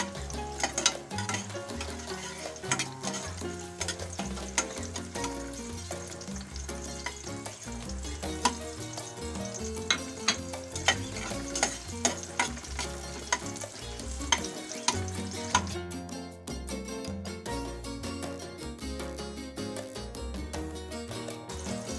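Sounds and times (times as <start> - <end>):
garlic sizzling in oil: 0.0 - 15.8, 21.5 - 21.9
metal spatula scraping pot: 0.0 - 15.8
background music: 0.0 - 21.9.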